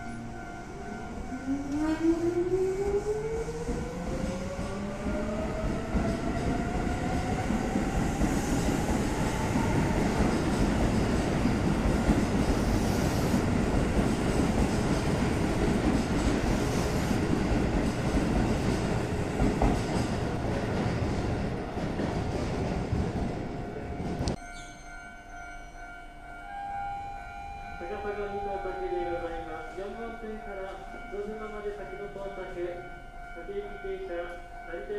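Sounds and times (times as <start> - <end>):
train wheels clattering on rails: 3.6 - 24.4.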